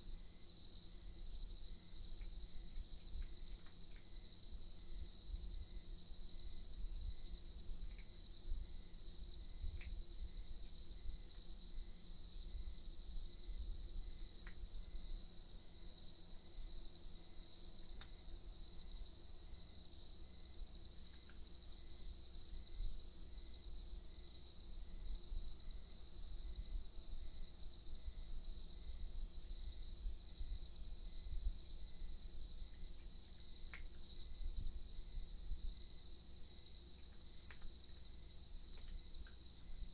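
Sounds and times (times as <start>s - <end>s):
crickets chirping: 0.0s - 39.9s
faint clicks: 7.8s - 8.2s, 9.7s - 10.0s, 14.4s - 14.7s, 18.0s - 18.2s, 21.0s - 21.4s, 32.7s - 34.0s, 37.0s - 39.6s.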